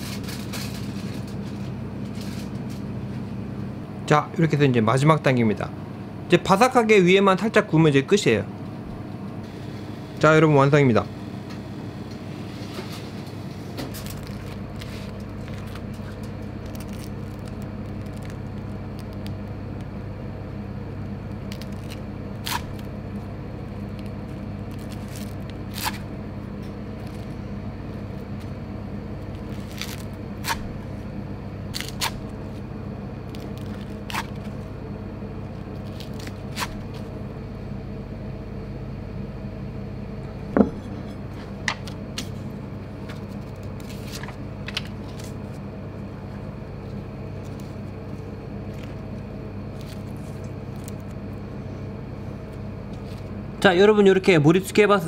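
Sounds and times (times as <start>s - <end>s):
low kitchen hum: 0.0s - 55.0s
knife crunching through grilled fish: 21.5s - 22.9s, 23.9s - 26.1s, 29.3s - 30.7s, 31.8s - 32.3s, 33.3s - 34.6s, 35.6s - 37.0s
knife knocking on cutting board: 40.6s - 40.8s.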